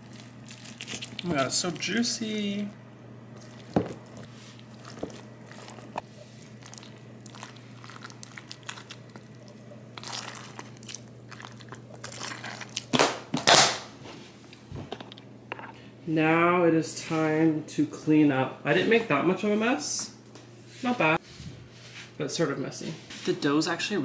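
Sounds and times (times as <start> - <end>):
wet squishing and rustling: 0.0 - 13.6
steady low hum: 0.0 - 24.0.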